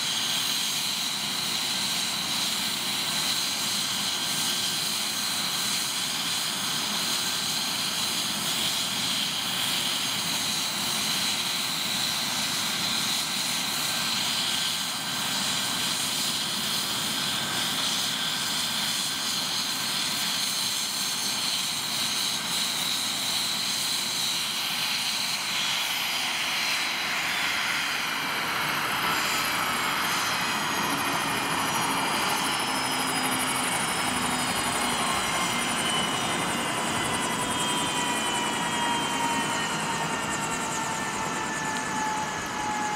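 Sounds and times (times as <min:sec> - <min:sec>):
helicopter rotor noise: 0:00.0 - 0:42.9
helicopter turbine whine: 0:00.0 - 0:42.9
whines gliding down in pitch: 0:25.3 - 0:42.9.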